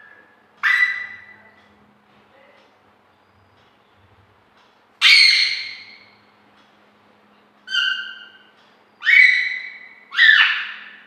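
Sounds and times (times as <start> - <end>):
parakeet calling: 0.0 - 1.5, 5.0 - 6.1, 7.7 - 11.0.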